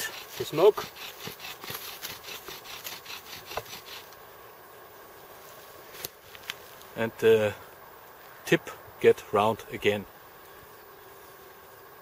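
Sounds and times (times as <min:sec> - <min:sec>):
bow drill spindle rubbing: 0:00.0 - 0:04.2.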